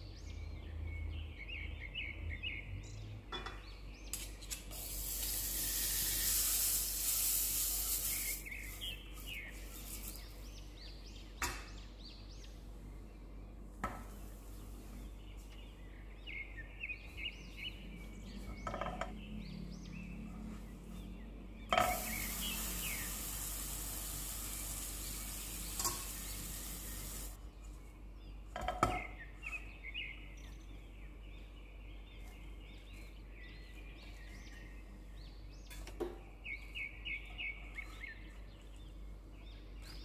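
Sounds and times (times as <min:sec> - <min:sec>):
small birds chirping: 0:00.0 - 0:40.0
bread sizzling in pan: 0:04.7 - 0:10.3, 0:21.8 - 0:27.4.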